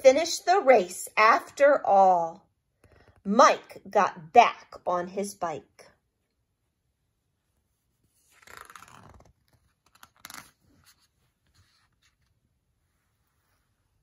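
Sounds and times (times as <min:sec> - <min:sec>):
page turning swish: 0:08.2 - 0:12.3.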